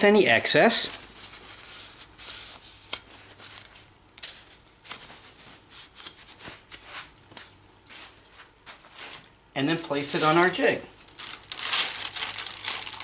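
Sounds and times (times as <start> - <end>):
soft rustles: 0.8 - 9.3.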